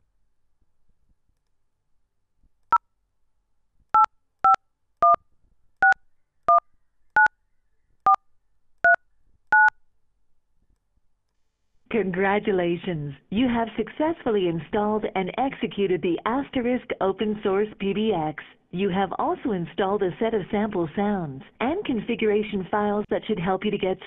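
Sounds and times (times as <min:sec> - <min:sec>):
keypad dialing tones: 0:04.0 - 0:05.2, 0:08.8 - 0:09.7.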